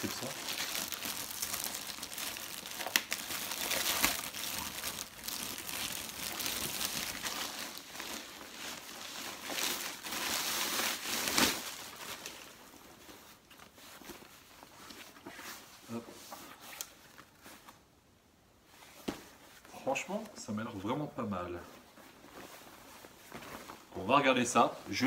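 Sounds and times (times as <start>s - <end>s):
plastic bag crinkling: 0.0s - 13.5s.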